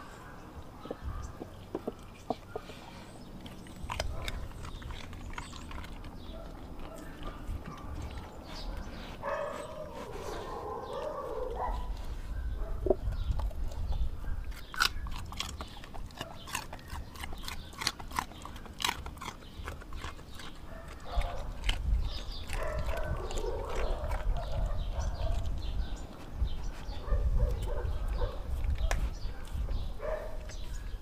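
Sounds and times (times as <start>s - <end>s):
dog chewing and lapping: 1.5s - 10.4s, 12.8s - 26.8s
dog crunching food: 3.2s - 10.4s, 12.8s - 26.3s.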